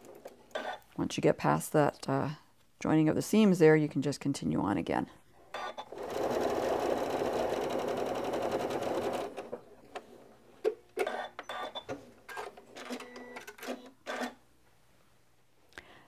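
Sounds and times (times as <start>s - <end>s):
sewing machine stitching: 5.5s - 9.6s.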